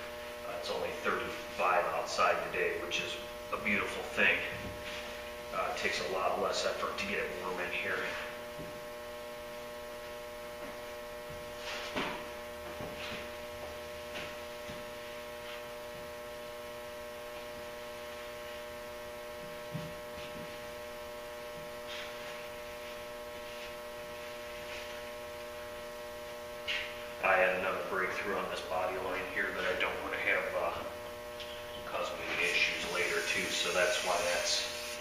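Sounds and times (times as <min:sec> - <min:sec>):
electrical mains hum: 0:00.0 - 0:35.0.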